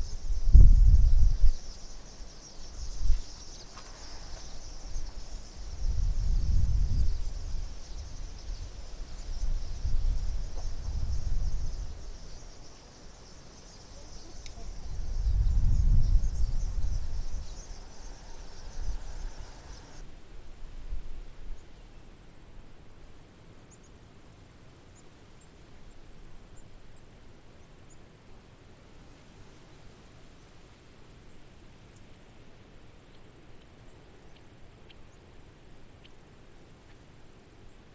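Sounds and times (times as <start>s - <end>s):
wind gusting on microphone: 0.0s - 2.0s, 2.6s - 12.6s, 14.1s - 20.0s
high-pitched insect chorus: 0.0s - 37.9s.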